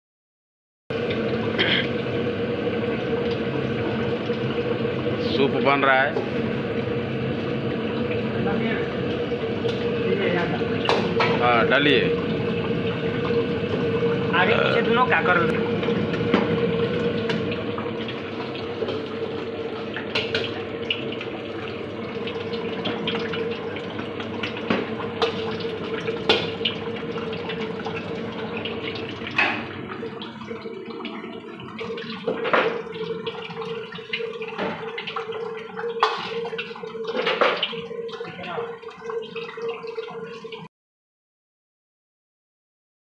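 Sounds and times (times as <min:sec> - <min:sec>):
steady hum: 0:00.9 - 0:39.3
soup boiling and sizzling in a wok: 0:23.6 - 0:30.2.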